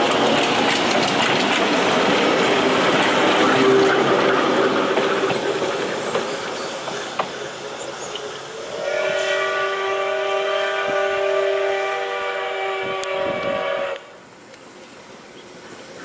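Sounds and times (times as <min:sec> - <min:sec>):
railcar wheels clicking on rails: 0:00.0 - 0:09.3
train whistle chord: 0:03.2 - 0:04.2, 0:08.6 - 0:14.2.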